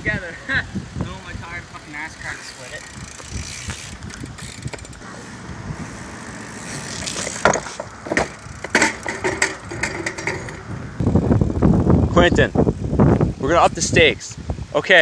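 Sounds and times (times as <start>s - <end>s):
bike rolling on asphalt: 0.0s - 13.4s
bike freewheel hub ticking: 1.8s - 11.4s
bike clattering onto asphalt: 2.1s - 5.0s, 6.4s - 10.8s.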